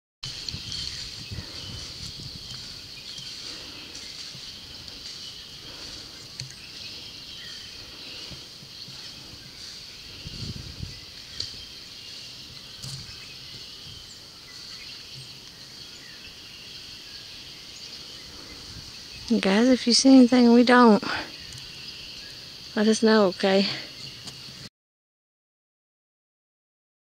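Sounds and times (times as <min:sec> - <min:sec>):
insect chorus: 0:00.2 - 0:24.7.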